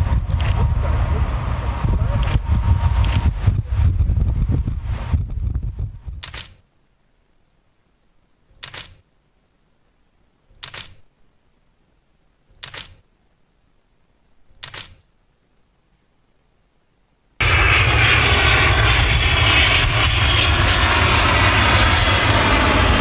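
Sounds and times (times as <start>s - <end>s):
jet aircraft rumble: 0.0s - 6.6s, 17.4s - 23.0s
camera shutter clicks: 6.2s - 6.6s, 8.6s - 9.0s, 10.6s - 11.0s, 12.6s - 13.0s, 14.6s - 15.1s.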